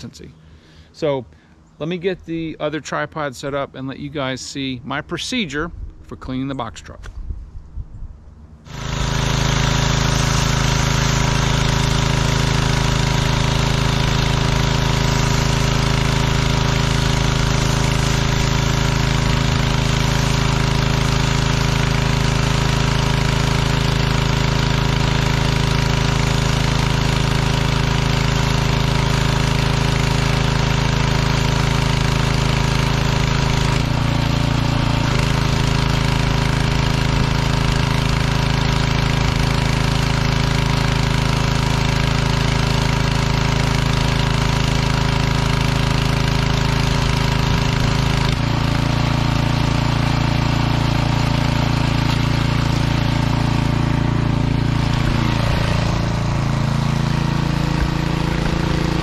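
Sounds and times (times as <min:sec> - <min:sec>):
pressure washer engine humming: 0:08.4 - 0:59.0
water spray hissing: 0:08.7 - 0:59.0.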